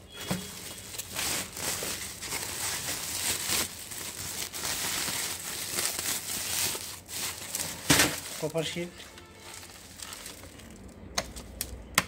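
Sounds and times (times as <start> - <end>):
plastic sack rustling: 0.0 - 11.0.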